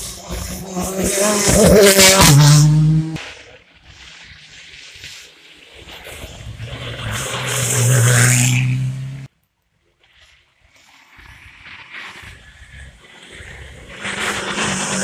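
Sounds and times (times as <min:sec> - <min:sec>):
distant rally car engine: 0:00.0 - 0:03.2, 0:06.6 - 0:09.3, 0:13.4 - 0:15.0
rally car engine passing: 0:00.0 - 0:03.2, 0:06.5 - 0:09.3, 0:13.7 - 0:15.0.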